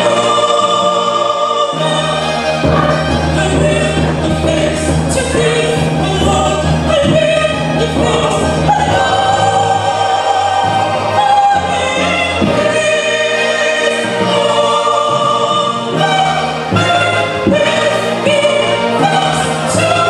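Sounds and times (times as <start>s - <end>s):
low accompaniment notes: 0.0s - 14.4s
choir singing gospel: 0.0s - 20.0s
lead singer on microphone: 0.0s - 20.0s.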